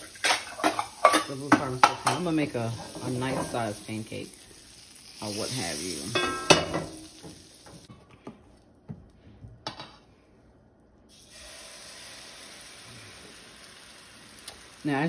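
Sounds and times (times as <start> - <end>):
batter hissing in pan: 0.0 - 7.9, 11.1 - 15.0
fat sizzling in frying pan: 0.0 - 7.9, 11.1 - 15.0.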